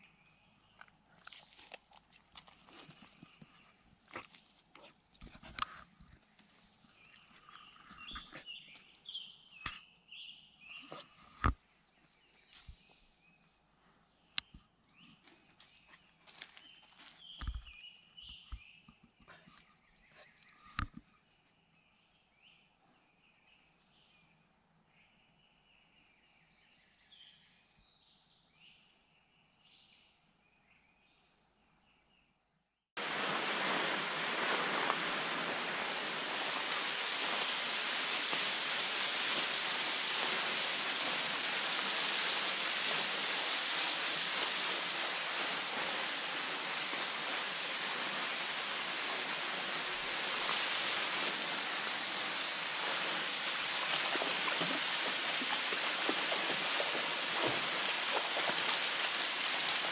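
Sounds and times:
faint birdsong: 0.0s - 32.7s
waterfall splashing into pool: 33.0s - 59.9s.

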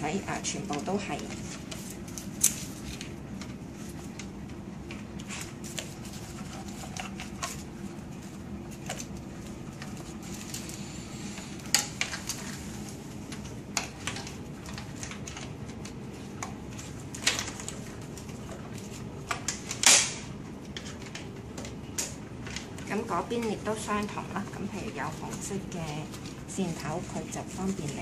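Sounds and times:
steady low hum: 0.0s - 28.0s
plastic clicks and clatters: 13.3s - 23.5s.

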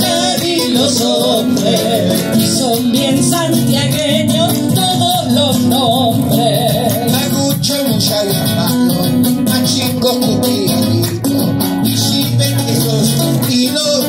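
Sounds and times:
woman and man singing duet: 0.0s - 11.1s
strummed acoustic guitars: 0.0s - 14.0s.

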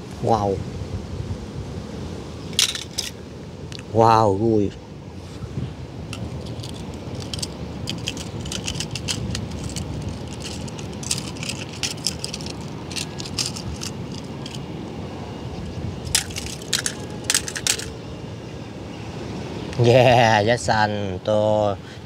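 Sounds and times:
toy cars clicking and clattering: 2.6s - 3.1s, 6.2s - 14.6s, 16.1s - 17.9s
toy cars dropping into plastic basket: 2.6s - 3.1s, 16.1s - 17.9s.

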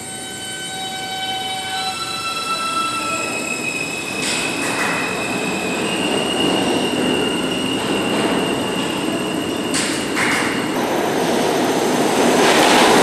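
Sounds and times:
train wheels squealing on rails: 0.0s - 10.8s
train rumble: 2.4s - 13.0s.

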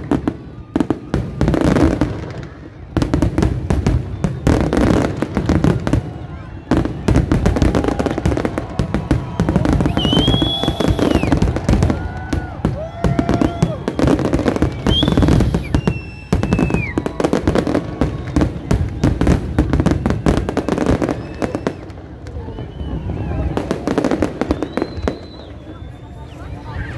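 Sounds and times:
fireworks bangs and crackles: 0.0s - 26.8s
firework whistle: 3.4s - 5.4s, 9.0s - 26.9s.

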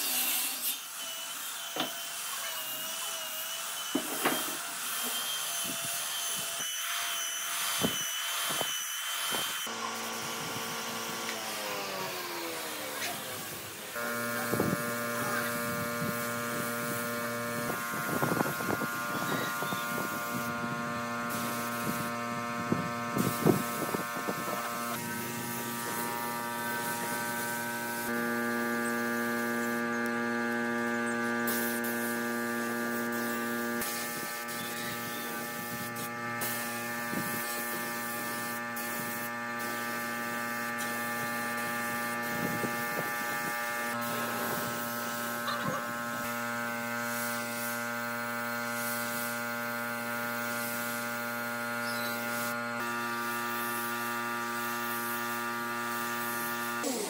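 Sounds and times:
spray gun hissing: 11.5s - 57.0s
machine hum: 13.6s - 57.0s.

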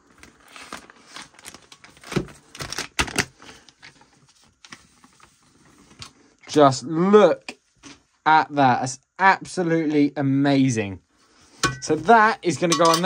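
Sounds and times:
plastic wrapping crinkling and tearing: 0.0s - 5.4s.

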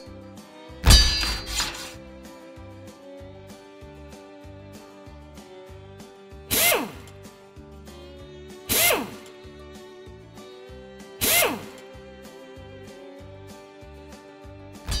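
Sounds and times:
background music with steady beat: 0.0s - 15.0s
mechanical whirring sliding down: 6.5s - 7.1s, 8.7s - 9.2s, 11.2s - 11.7s.

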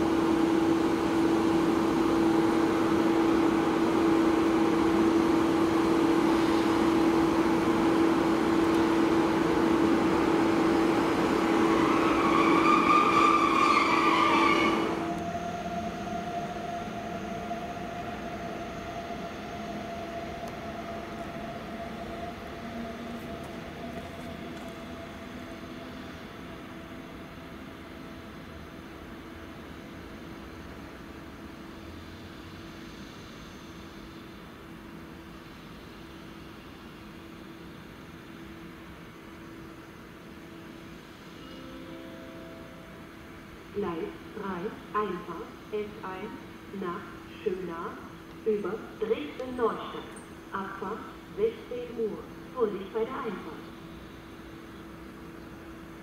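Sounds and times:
rising whine: 0.0s - 27.9s, 40.9s - 44.9s
train electrical hum: 0.0s - 56.0s.

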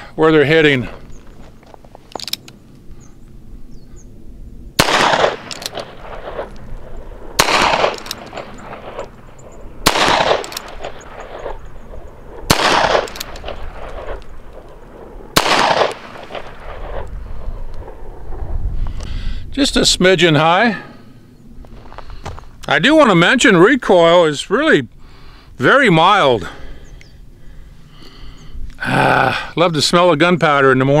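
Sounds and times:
revolver gunshots: 4.7s - 18.5s.

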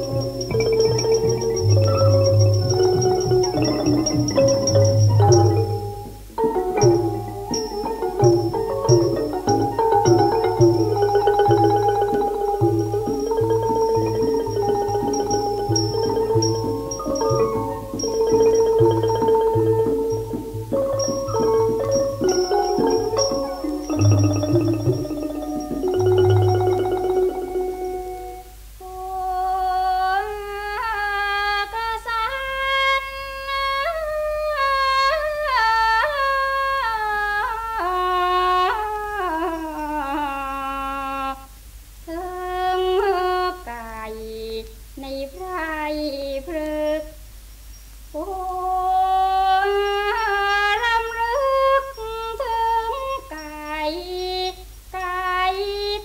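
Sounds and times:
low record hum: 0.0s - 56.0s.

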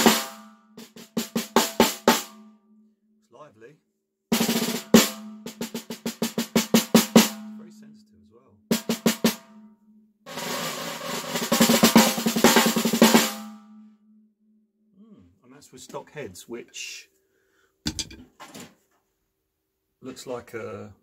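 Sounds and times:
snare drum struck with sticks: 17.9s - 18.2s.

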